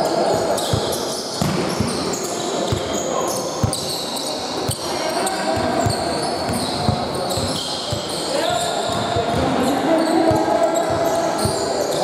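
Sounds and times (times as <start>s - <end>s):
shoes squeaking on court: 0.4s - 12.0s
basketball bouncing on floor: 5.6s - 7.6s.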